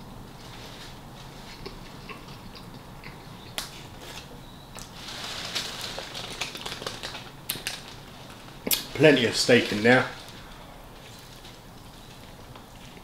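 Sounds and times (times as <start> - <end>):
soft crackle: 0.3 - 13.0
close chewing with mouth clicks: 1.4 - 3.9.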